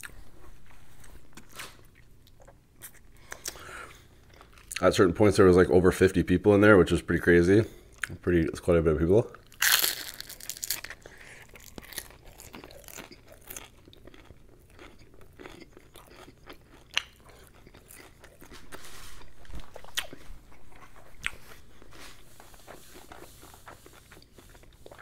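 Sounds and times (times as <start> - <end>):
person chewing crispy food: 0.0 - 4.8, 9.4 - 25.0.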